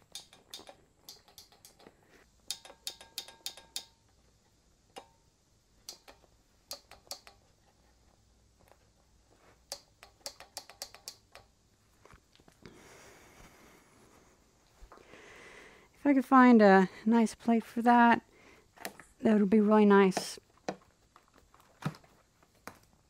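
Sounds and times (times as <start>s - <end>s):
switches clicking: 5.8s - 7.4s.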